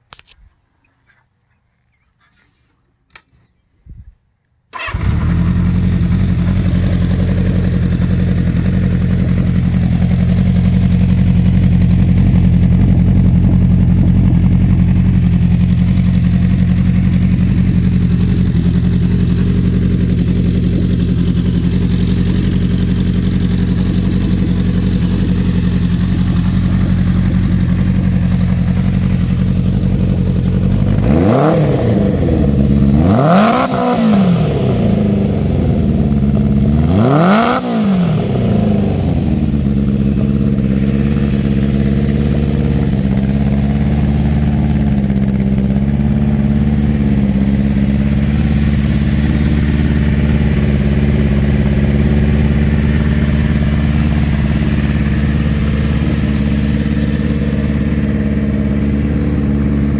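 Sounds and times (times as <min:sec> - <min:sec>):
motorcycle engine idling and revving: 0:04.8 - 0:59.9.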